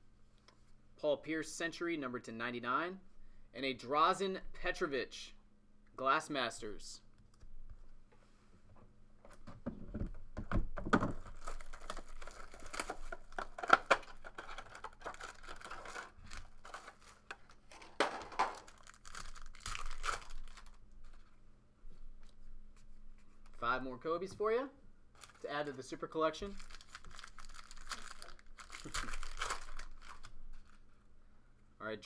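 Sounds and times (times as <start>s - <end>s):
plastic wrapping crinkling and tearing: 11.1s - 21.4s, 25.2s - 30.9s.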